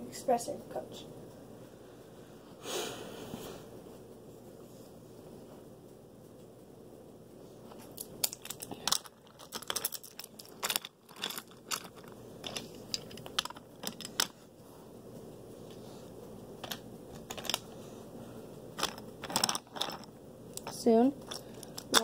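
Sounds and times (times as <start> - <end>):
toy trains clattering on wooden track: 8.2 - 14.4, 16.6 - 17.6, 18.8 - 22.0.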